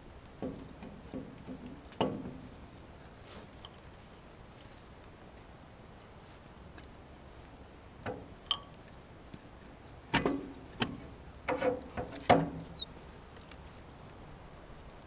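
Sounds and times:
metal clanks and knocks: 0.4s - 2.5s, 10.1s - 12.7s.

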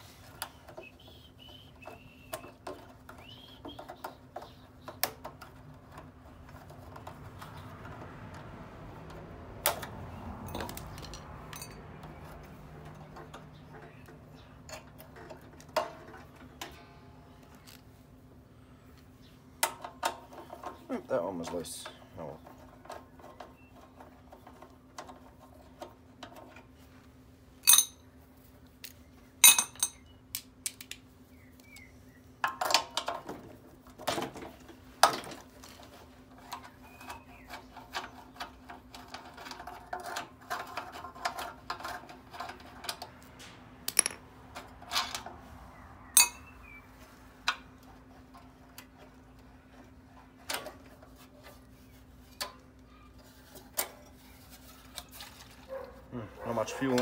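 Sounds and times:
metallic clinks of tools: 10.5s - 11.9s, 27.6s - 28.0s, 29.4s - 30.0s, 46.2s - 46.5s.

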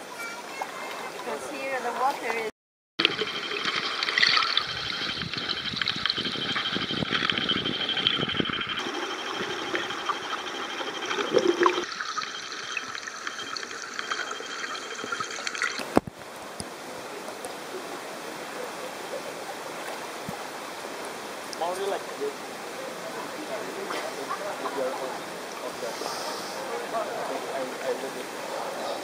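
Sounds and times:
thin steady high tone: 3.0s - 16.0s
underwater bubbles rushing: 3.0s - 16.2s.

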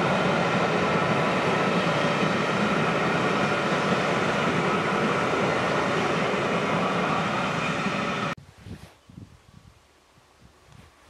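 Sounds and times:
train coaches rumbling on track: 0.0s - 8.4s.

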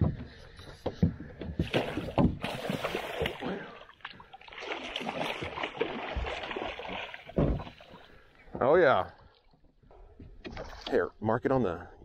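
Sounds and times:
fish thrashing at surface: 1.6s - 3.7s
water splashing at boat side: 1.6s - 8.3s.

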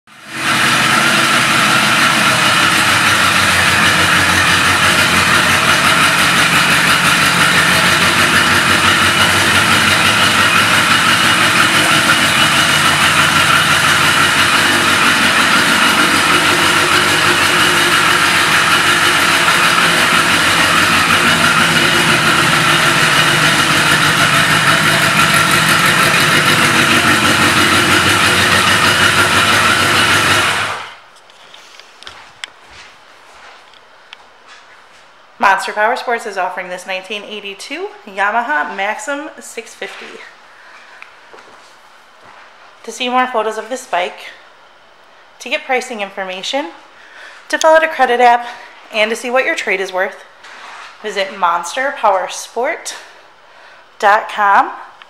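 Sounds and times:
motorcycle engine idling: 0.1s - 31.0s.

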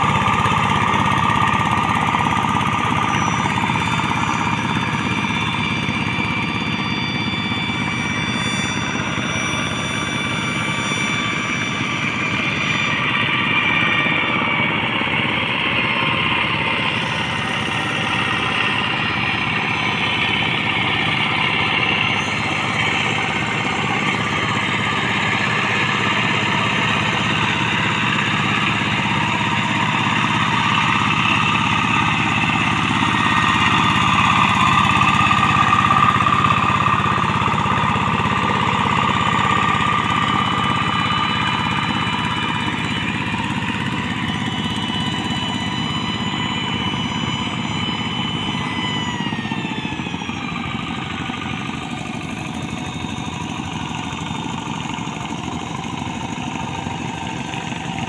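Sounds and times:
wheels churning through water: 0.0s - 7.4s, 17.4s - 48.5s, 50.2s - 58.0s
diesel engine running under load: 0.0s - 58.0s.

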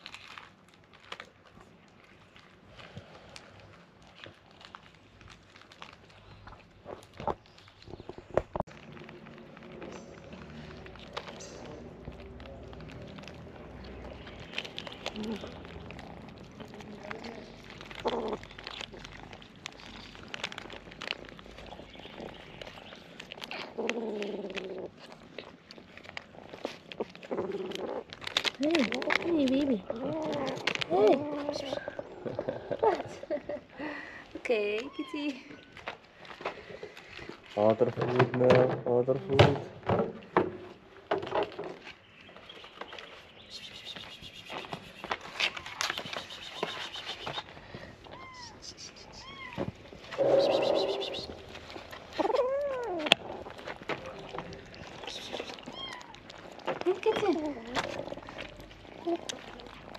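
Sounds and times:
cats crunching food: 0.0s - 39.6s, 40.2s - 59.9s
crackly packaging rustling: 0.0s - 48.6s, 49.2s - 59.9s
cat meowing: 48.0s - 51.4s, 55.4s - 56.4s
kitten mewing: 48.0s - 51.5s, 55.0s - 56.4s.

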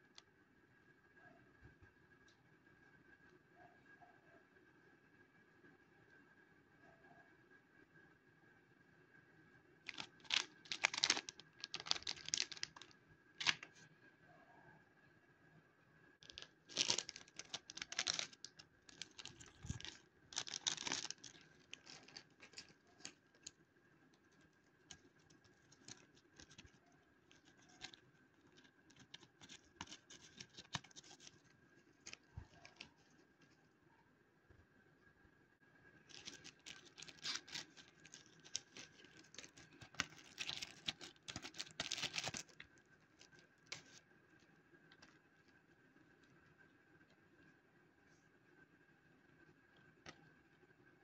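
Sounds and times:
plastic wrapper crinkling and tearing: 9.9s - 13.8s, 16.2s - 23.6s, 24.2s - 33.6s, 36.1s - 44.0s.

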